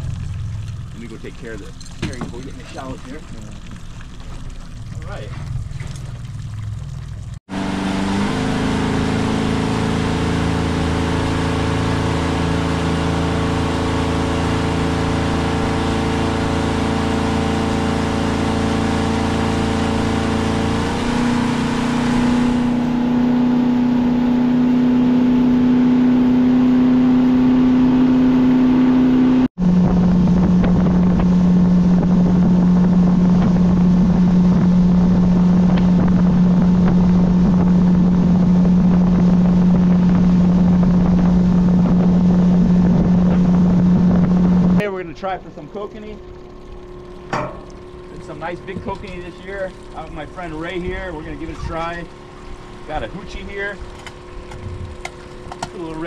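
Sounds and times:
wind and water hiss: 0.0 - 8.3, 29.6 - 56.0
outboard motor hum: 0.0 - 56.0.

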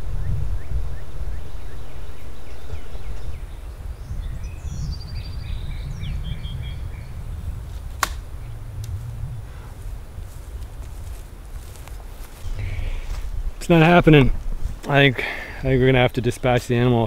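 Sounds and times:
small birds chirping: 0.0 - 17.0
wind rumble on microphone: 0.0 - 17.0
sharp click: 8.0 - 8.2.

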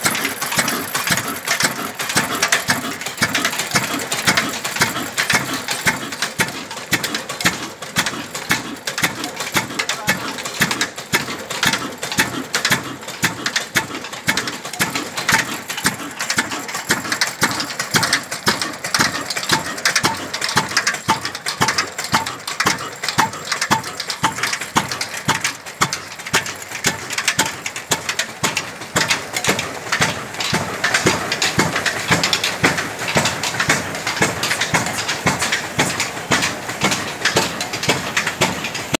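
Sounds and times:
diesel engine exhaust knocks: 0.0 - 38.9.

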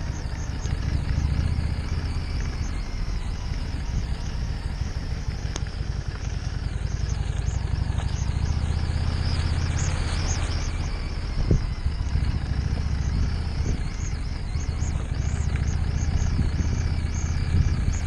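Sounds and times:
motorcycle engine running: 0.0 - 18.0
tyres on wet gravel: 0.0 - 18.0
wind noise: 6.6 - 18.0.

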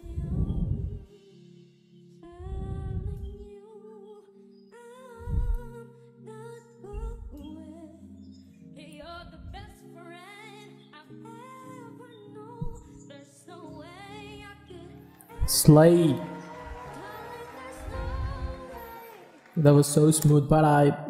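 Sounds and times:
dull low thumps: 0.0 - 1.1, 2.4 - 3.4, 5.2 - 5.7
boys singing in harmony: 15.3 - 19.7.

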